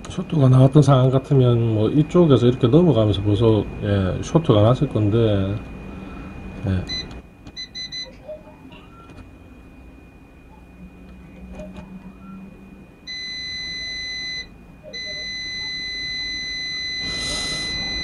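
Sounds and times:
multimeter continuity beeps: 6.8 - 9.4, 10.5 - 18.0.

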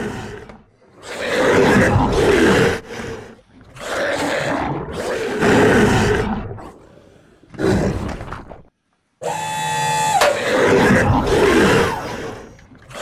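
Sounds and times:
monster roar: 1.0 - 6.9, 10.3 - 13.0.

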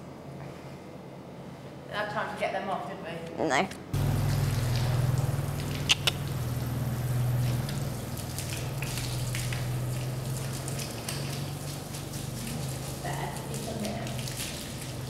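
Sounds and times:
low machine hum: 3.8 - 15.0
water running: 4.0 - 15.0
sharp clicks: 4.8 - 6.4.

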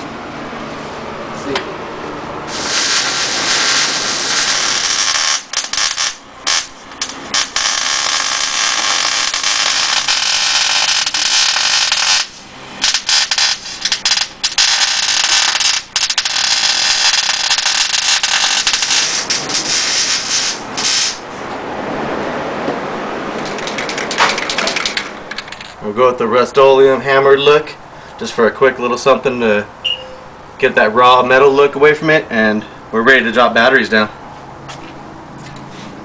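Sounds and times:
arc welding crackling hiss: 2.5 - 21.3.

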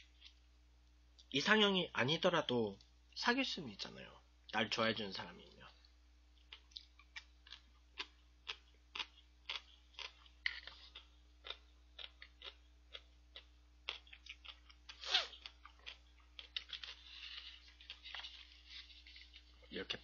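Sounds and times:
mouth clicks and smacks chewing: 6.4 - 18.4.

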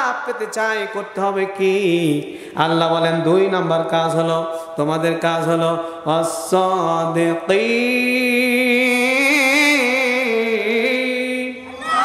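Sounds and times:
man chanting: 0.0 - 11.7.

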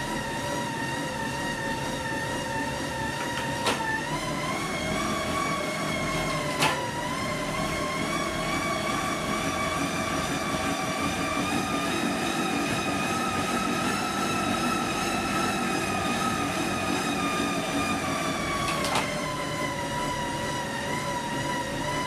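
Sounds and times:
bike tyres whining on rollers: 0.0 - 22.0.

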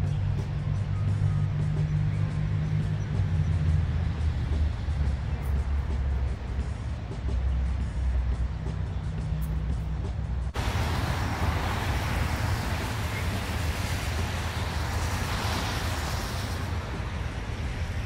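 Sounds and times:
rushing hiss: 10.6 - 18.0.

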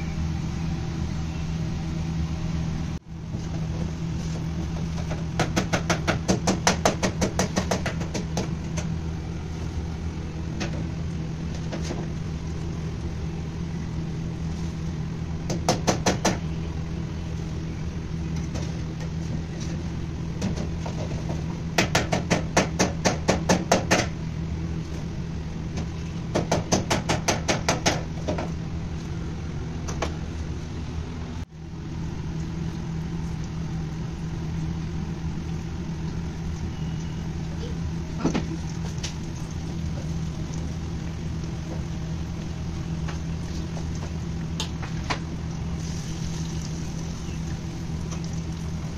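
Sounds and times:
kitchen machine hum: 0.0 - 48.9
oil frying: 31.5 - 48.9.

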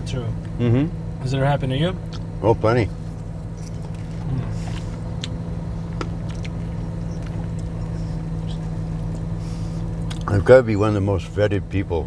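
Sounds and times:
car engine hum: 0.0 - 12.0.

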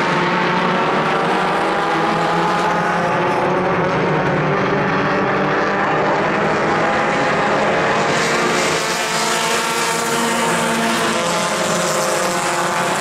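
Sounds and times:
race car engines droning: 0.0 - 13.0.

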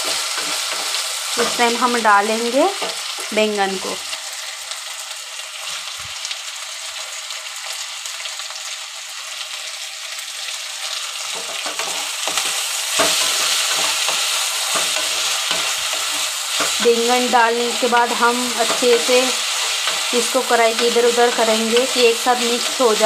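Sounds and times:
spatula scraping pan: 0.0 - 1.8, 11.3 - 23.0
vegetables sizzling in hot oil: 0.0 - 23.0.

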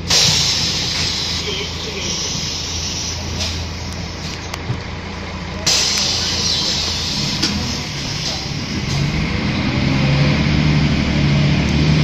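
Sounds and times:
bus engine idling: 0.0 - 12.0
compressed air hiss: 0.1 - 4.3, 5.7 - 8.7.

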